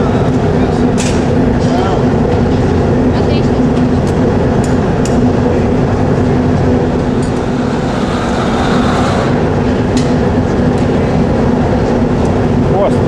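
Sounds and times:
furnace burners roaring: 0.0 - 13.0
gas torch flame hissing: 7.0 - 10.2.

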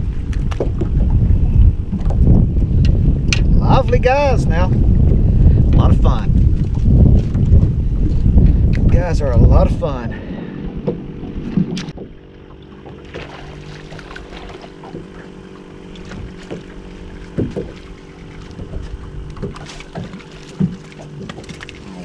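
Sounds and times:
boat motor humming: 0.0 - 22.0
wind on microphone: 0.0 - 22.0
light knocks: 17.3 - 17.8.

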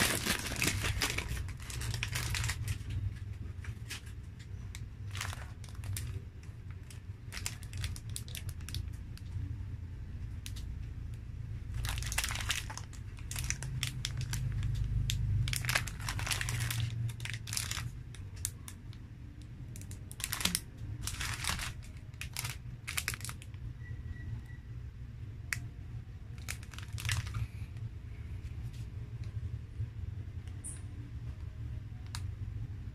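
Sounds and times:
plastic wrappers crinkling: 0.0 - 9.4, 11.6 - 23.7, 26.3 - 27.9.

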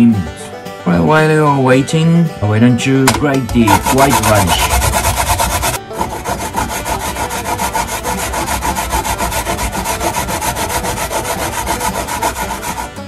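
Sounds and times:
radish grated on metal grater: 3.1 - 13.0.

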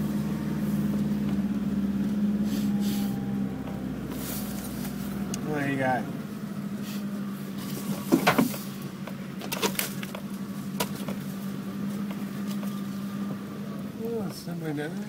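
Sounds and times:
vehicle engine running: 0.0 - 15.0
vehicle jolting knocks and clatters: 7.6 - 11.3.

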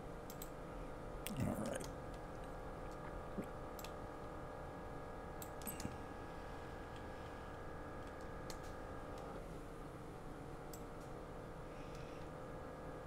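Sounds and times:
steady background hum: 0.0 - 13.0
faint computer mouse clicks: 0.3 - 0.6.

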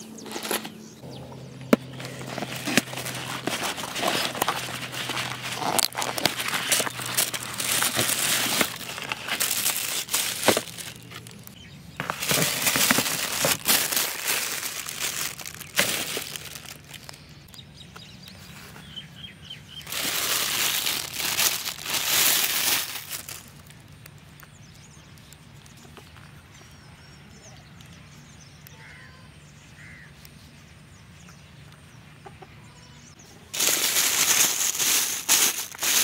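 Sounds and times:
packaging clicks and knocks: 1.6 - 17.2, 19.9 - 23.5
plastic bag crinkling: 1.7 - 17.3, 19.8 - 23.8, 33.6 - 36.0.

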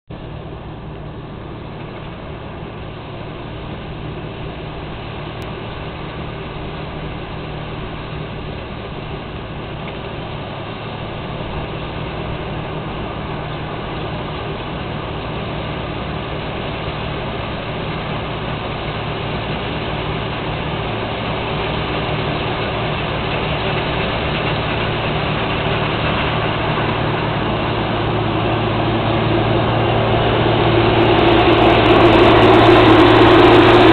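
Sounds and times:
combine harvester drone: 0.1 - 33.9.

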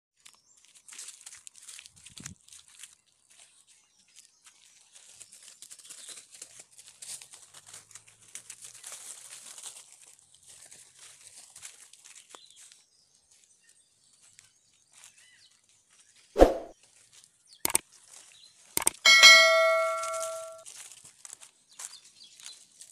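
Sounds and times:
footsteps crackling on dry leaves: 0.2 - 12.7.

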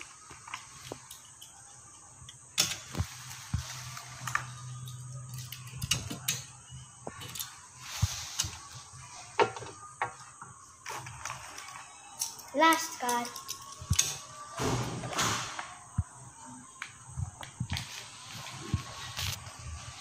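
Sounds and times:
toy cars clicking on glass: 0.5 - 3.0, 4.2 - 6.6, 10.9 - 14.3.

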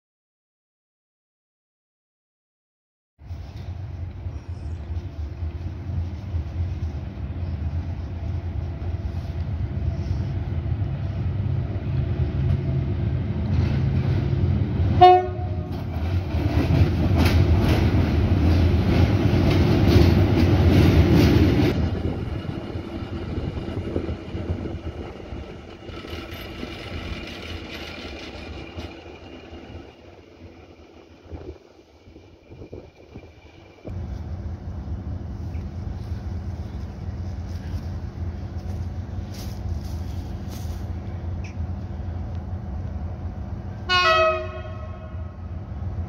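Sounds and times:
locomotive horn blast: 15.0 - 15.8, 43.8 - 45.5
wheels clattering over rail joints: 15.7 - 30.6
diesel engine droning: 21.7 - 46.0.

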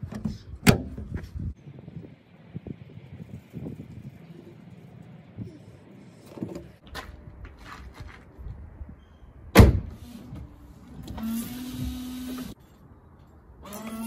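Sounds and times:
car bonnet thump: 9.6 - 9.9.

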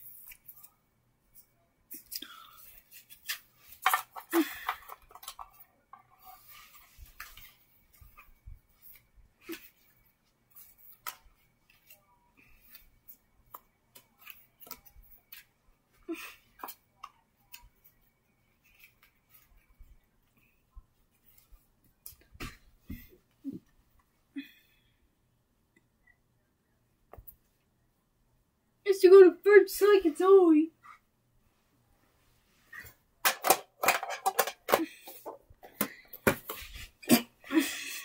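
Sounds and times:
cards and paper being handled: 2.0 - 5.7.

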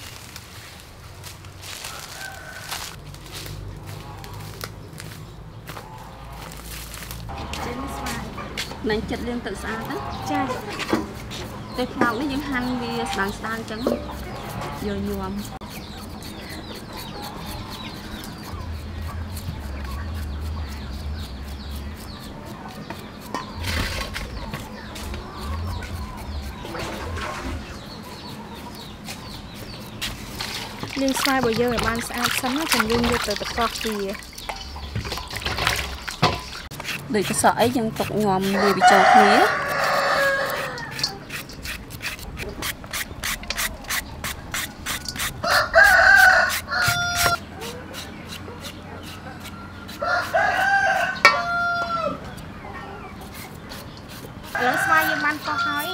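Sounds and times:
rooster crowing: 1.7 - 3.0, 38.5 - 41.2, 45.4 - 47.4, 49.6 - 52.3, 54.5 - 55.9
peeler rasping through mango: 7.3 - 34.9, 36.0 - 52.4, 53.0 - 55.9
chickens clucking: 7.3 - 55.9.

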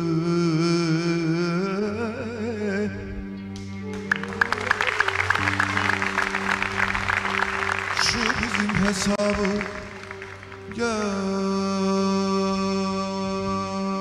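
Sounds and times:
man singing with vibrato: 0.0 - 3.4, 8.0 - 14.0
audience clapping: 3.9 - 11.5.

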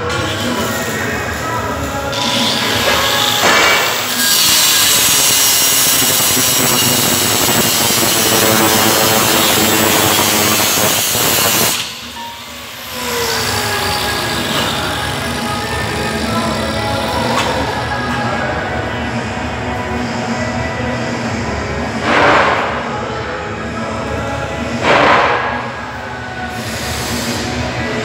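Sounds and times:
angle grinder grinding steel: 0.0 - 18.2.

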